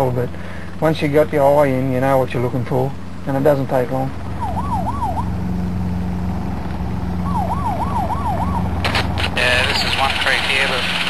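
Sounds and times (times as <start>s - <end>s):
helicopter engine and rotor drone: 0.0s - 11.0s
siren yelping: 4.1s - 5.6s, 7.0s - 8.9s.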